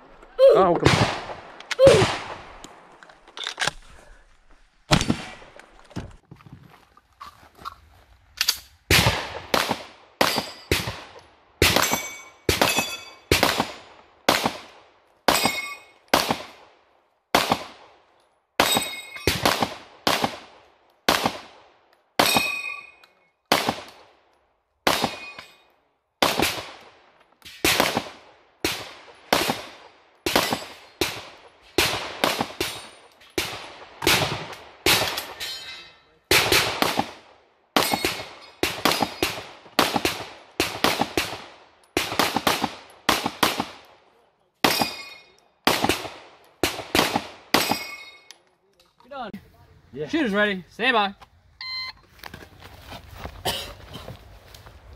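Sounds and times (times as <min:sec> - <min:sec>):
pistol shots: 0:00.8 - 0:02.6, 0:08.9 - 0:16.7, 0:18.6 - 0:21.6, 0:23.5 - 0:24.1, 0:24.8 - 0:25.4, 0:26.2 - 0:26.8, 0:37.8 - 0:43.9, 0:44.6 - 0:47.9.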